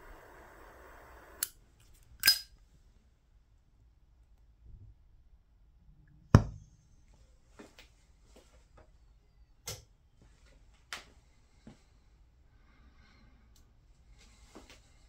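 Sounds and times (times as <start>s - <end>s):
sharp pop with low thump: 6.4s - 6.6s.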